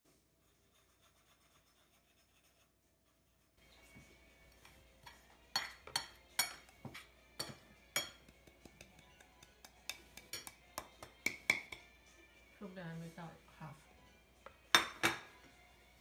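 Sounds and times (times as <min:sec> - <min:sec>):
ceramic bowl clinking on glass bowl: 0:05.0 - 0:11.9, 0:14.7 - 0:15.3.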